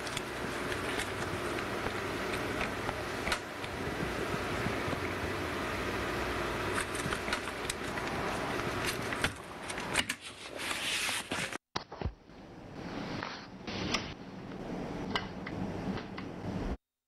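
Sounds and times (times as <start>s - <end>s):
clicks and crackles: 6.7s - 10.3s.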